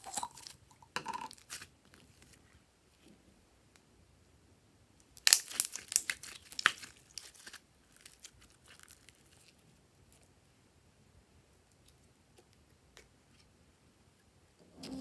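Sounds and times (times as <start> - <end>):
slime sticky crackles: 5.1 - 10.2.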